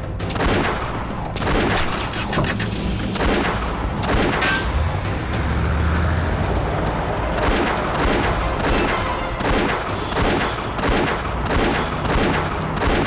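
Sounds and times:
rapid gunshots: 0.2 - 4.7, 7.3 - 13.0.

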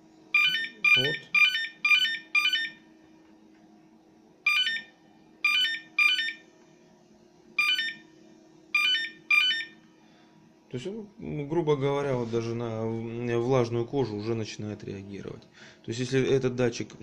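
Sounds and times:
high-pitched alarm beeps: 0.3 - 2.8, 4.5 - 6.4, 7.6 - 8.0, 8.7 - 9.8.

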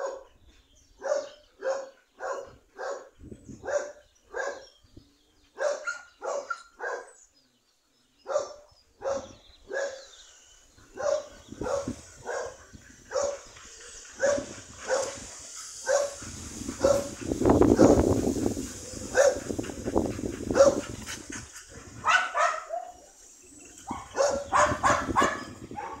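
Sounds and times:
young dog barking and yipping: 5.6 - 7.2, 10.8 - 23.1, 23.8 - 26.0.

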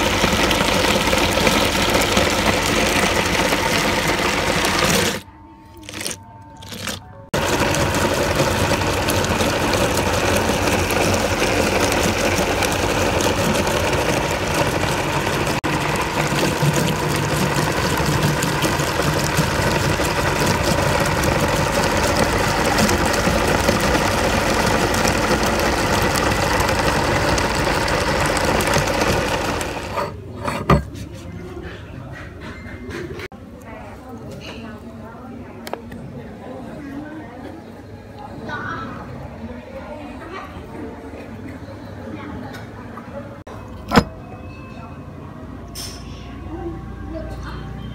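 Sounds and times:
meat grinder grinding bones: 0.0 - 5.2, 5.8 - 30.2.

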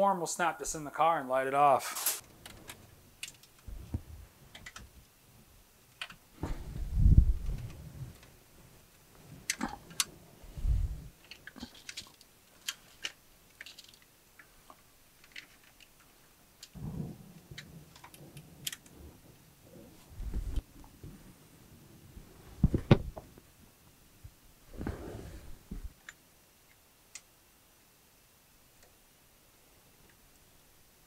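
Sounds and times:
wiring clicks and rustles: 1.8 - 21.4
dull low thumps: 6.4 - 8.0, 10.5 - 11.1, 20.1 - 21.3.

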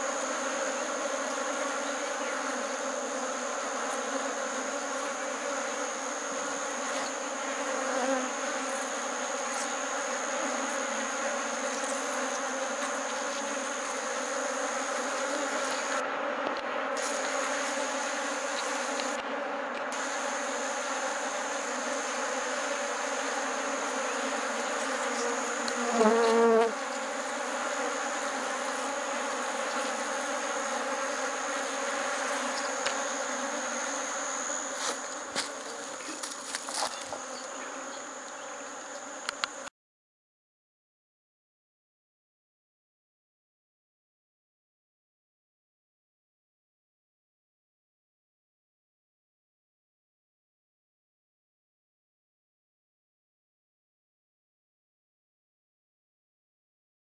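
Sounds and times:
honeybees buzzing: 0.0 - 39.7
loud wavering buzz: 27.6 - 35.5.

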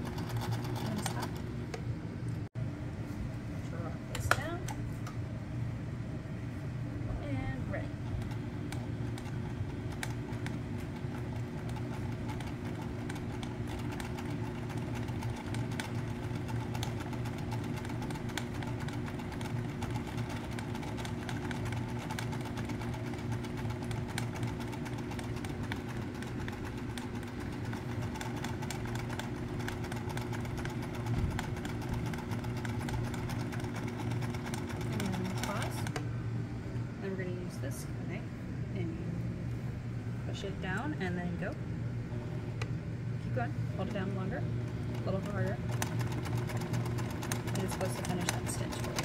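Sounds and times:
sewing machine stitching: 0.0 - 1.4, 9.9 - 35.9, 44.9 - 49.0.

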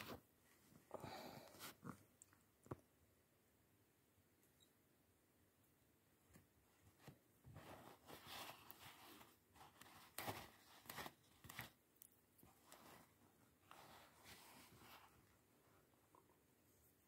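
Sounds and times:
paper towel rustling: 7.5 - 11.7.

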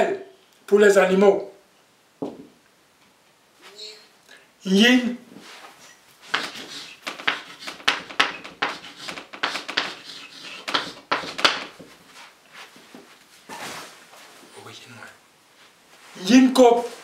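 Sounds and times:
chalk writing on blackboard: 6.2 - 12.0.

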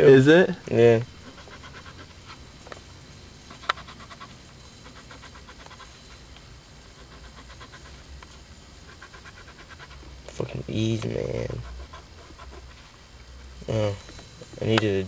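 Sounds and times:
coin scratching lottery ticket: 1.2 - 2.4, 3.5 - 6.2, 7.0 - 8.0.

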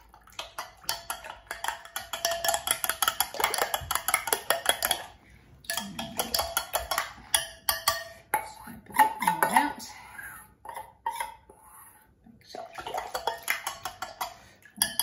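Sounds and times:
utensil clinking against glass: 0.4 - 5.1.

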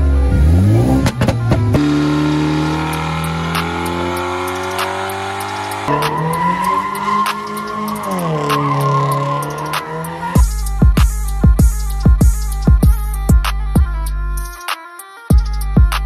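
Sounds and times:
car engine running hard: 0.0 - 10.4
trap beat: 0.5 - 16.0
tyre squeal: 5.9 - 10.4.

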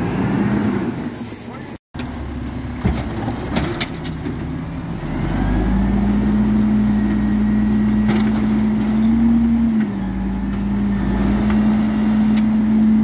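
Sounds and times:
truck engine revving: 4.4 - 13.0.

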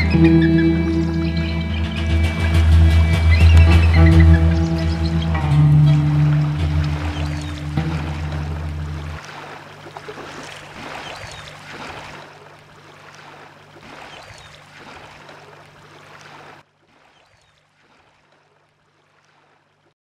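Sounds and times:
short high chirps: 0.0 - 9.1
low hum: 0.0 - 9.2
rushing water noise: 0.0 - 16.6.

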